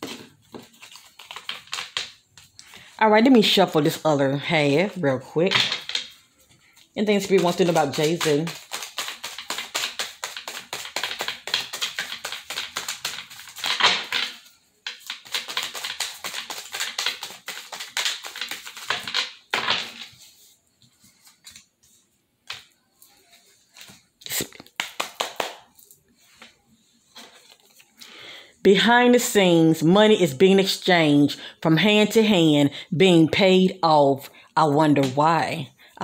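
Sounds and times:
cards being shuffled: 0.0 - 2.5, 7.1 - 20.3, 23.7 - 26.5, 27.1 - 28.0.

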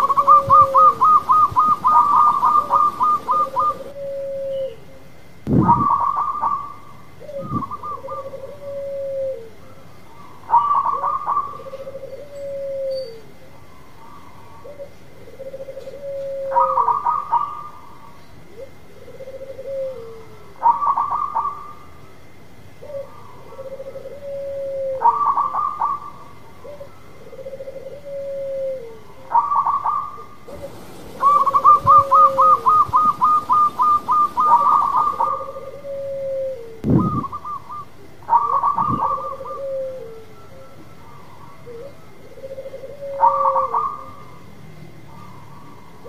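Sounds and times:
dove cooing: 0.0 - 13.3, 14.0 - 21.9, 22.8 - 44.4.

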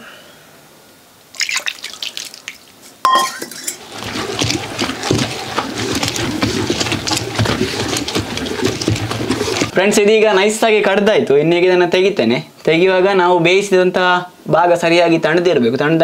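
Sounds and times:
water splashing onto coconut: 1.3 - 9.8
stone pestle grinding wet paste: 3.6 - 9.8.

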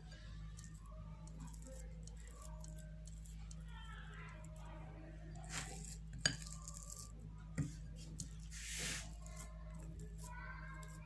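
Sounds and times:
low steady hum: 0.0 - 11.0
spatula scraping swish: 8.5 - 9.4.

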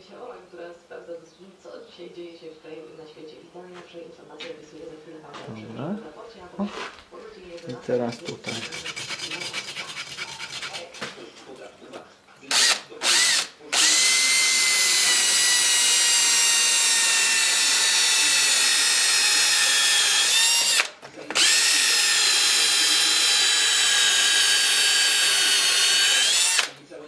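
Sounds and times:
electric drill boring into brick: 12.5 - 26.8.

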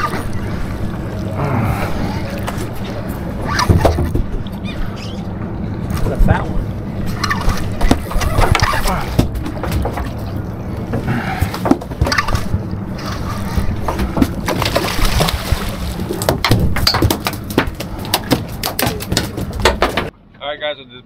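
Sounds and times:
water sloshing: 0.0 - 20.1
steady low drone: 0.0 - 20.4
knocks and clatters: 7.4 - 10.3, 16.2 - 20.1.

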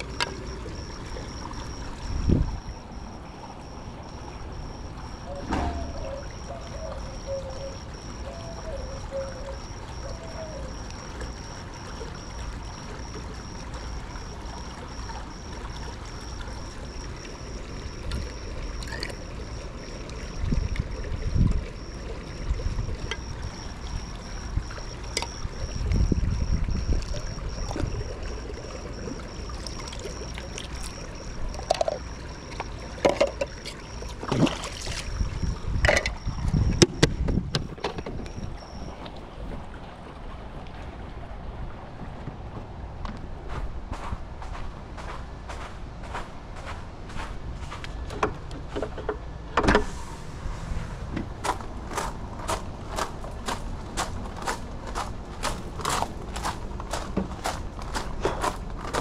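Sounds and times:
wind on microphone: 0.0 - 10.1, 20.3 - 28.3, 34.3 - 44.8
faint high tone: 0.0 - 15.5
pool water splashing: 0.0 - 43.4, 48.7 - 59.0
sharp knocks: 5.4 - 6.1.

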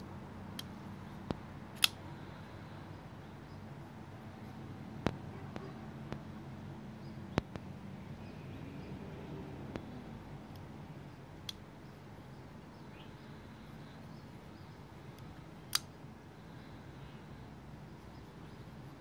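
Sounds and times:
folding knife clicking: 1.8 - 2.0, 15.7 - 15.9.

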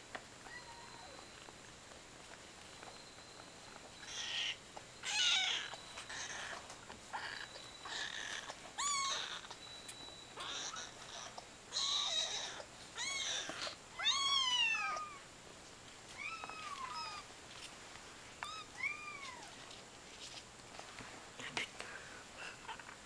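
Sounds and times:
rustling: 15.8 - 21.7.

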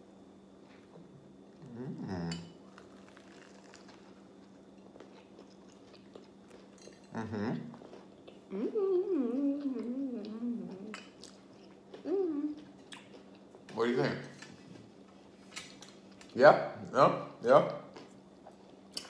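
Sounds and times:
person humming with full mouth: 1.6 - 2.4, 7.1 - 7.7, 8.5 - 11.0, 12.1 - 12.6
person chewing: 2.6 - 8.5, 9.6 - 13.7.

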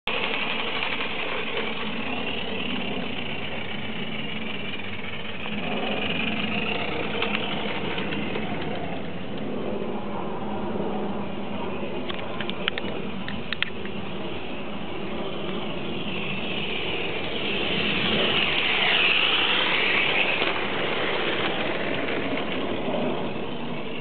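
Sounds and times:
model steam locomotive running: 0.1 - 9.4, 11.7 - 24.0.

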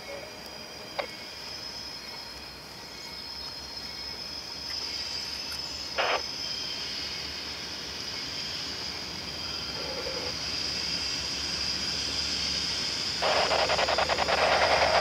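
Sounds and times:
high-pitched insect chorus: 0.0 - 15.0
train rumble: 6.9 - 15.0.

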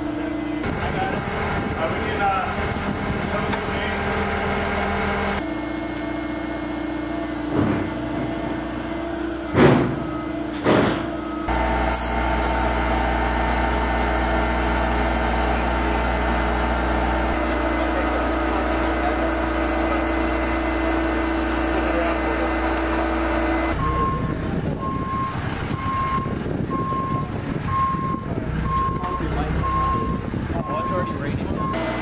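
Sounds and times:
machinery droning: 0.0 - 10.5, 11.2 - 32.0
sharp knocks: 9.5 - 11.1.

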